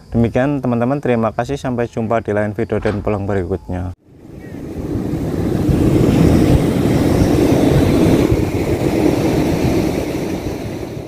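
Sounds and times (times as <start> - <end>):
wind buffeting microphone: 4.0 - 11.0
surf breaking: 4.1 - 11.0.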